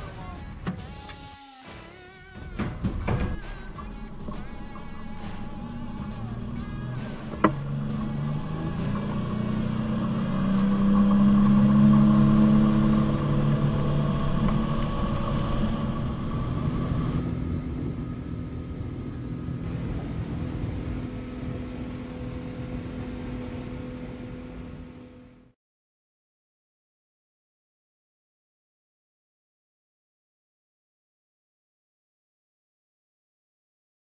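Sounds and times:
outboard motor running: 2.6 - 25.6.

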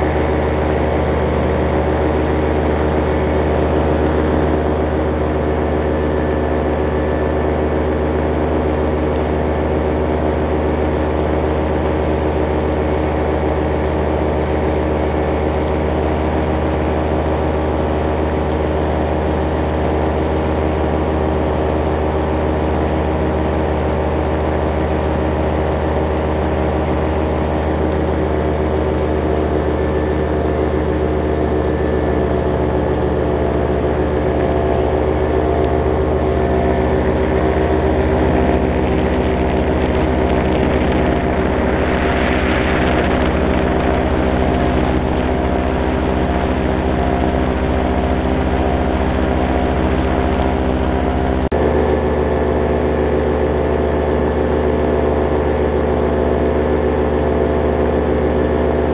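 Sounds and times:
paramotor engine and propeller: 0.0 - 58.9
wind noise: 36.9 - 51.5.

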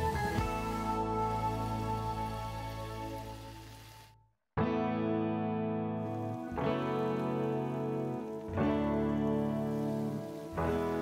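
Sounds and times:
background music: 0.0 - 11.0
music piece: 0.0 - 11.0.

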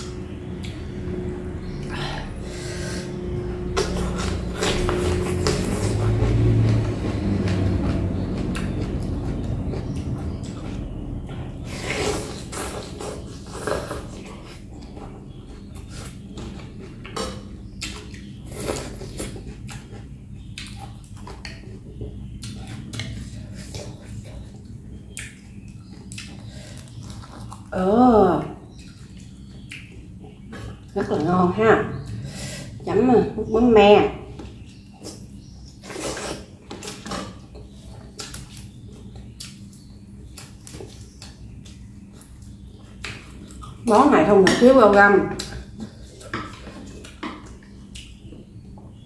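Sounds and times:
steady low hum: 0.0 - 49.0
wet chewing and lip smacking: 3.7 - 27.7, 28.7 - 31.0, 34.5 - 43.8, 45.4 - 48.9.

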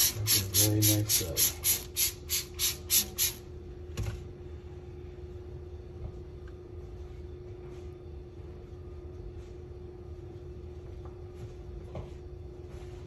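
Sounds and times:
constant hum: 0.0 - 13.0.

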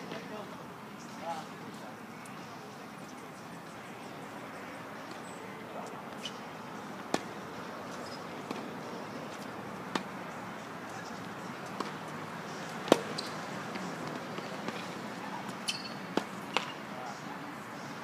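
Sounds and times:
racket striking tennis ball: 7.1 - 7.3, 9.4 - 10.1, 12.8 - 14.9, 15.5 - 16.8.

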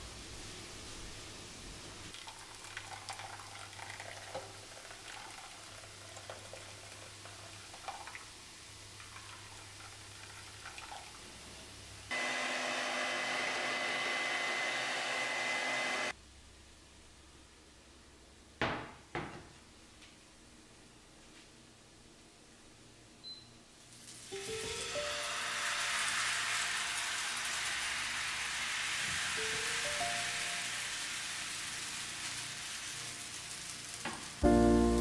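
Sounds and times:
liquid trickling: 2.1 - 11.4
electric hand mixer whining: 12.1 - 16.1.

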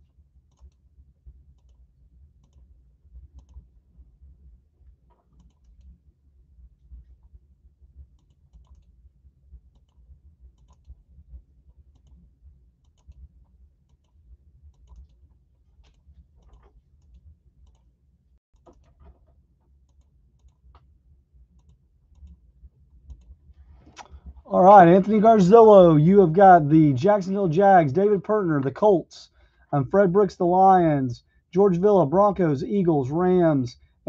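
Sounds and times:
keyboard and mouse clicking: 0.5 - 0.8, 1.6 - 1.8, 3.4 - 3.6, 5.3 - 5.9, 8.2 - 8.9, 10.6 - 11.0, 14.8 - 15.2, 15.8 - 17.9
low steady hum: 19.6 - 33.7.

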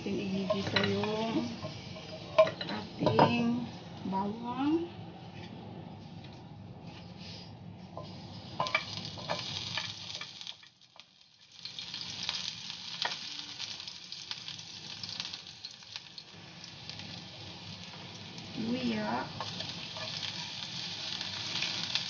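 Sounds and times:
garlic sizzling in hot oil: 0.0 - 3.4, 7.9 - 22.0
utensils clicking on a pan: 0.2 - 3.4, 8.0 - 12.1, 18.6 - 20.5.

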